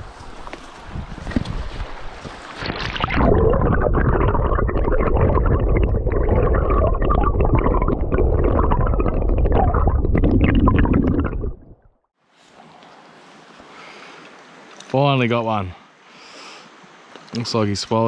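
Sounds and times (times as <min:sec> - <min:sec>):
stream water rushing underwater: 0:01.6 - 0:12.0.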